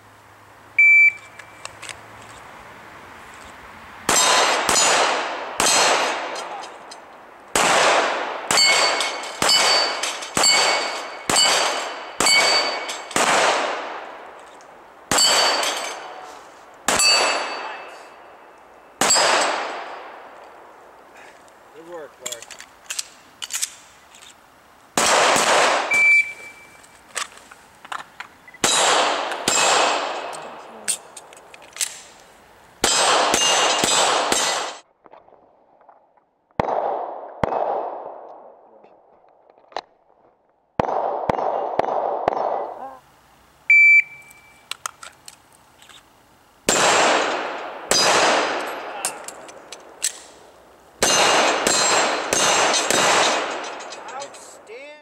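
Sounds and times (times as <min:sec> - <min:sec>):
pistol shots echoing: 0:04.1 - 0:06.7, 0:07.5 - 0:14.4, 0:15.1 - 0:16.2, 0:16.8 - 0:18.3, 0:18.9 - 0:20.4, 0:25.0 - 0:26.3, 0:28.6 - 0:30.6, 0:32.8 - 0:34.8, 0:36.6 - 0:38.3, 0:40.8 - 0:42.7, 0:46.7 - 0:50.3, 0:51.0 - 0:54.0
steel target ringing: 0:08.5 - 0:13.2, 0:15.1 - 0:16.2, 0:16.9 - 0:18.4.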